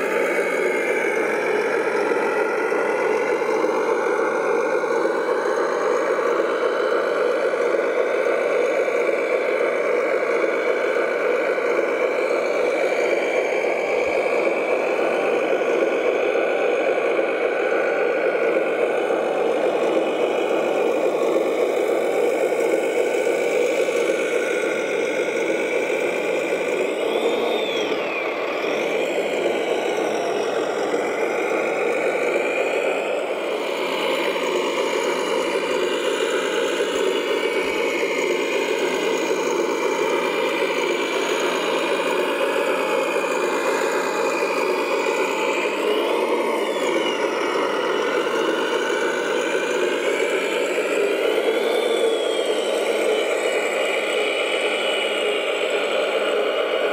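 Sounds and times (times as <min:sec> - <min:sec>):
model machine motors running: 0:00.0 - 0:56.9
motor whine rising and falling: 0:00.0 - 0:56.9.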